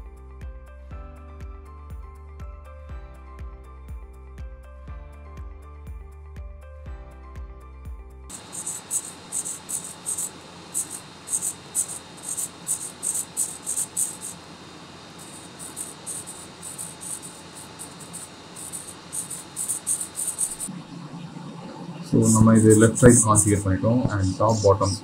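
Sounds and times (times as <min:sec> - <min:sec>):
servos whirring: 0:08.3 - 0:20.7.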